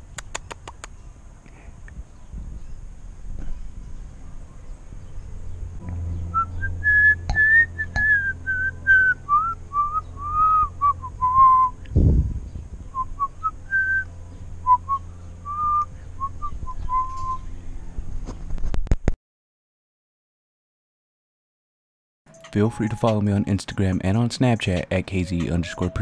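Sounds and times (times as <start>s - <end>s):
cockatiel whistling: 6.3s - 11.8s, 14.7s - 17.4s, 22.3s - 23.7s.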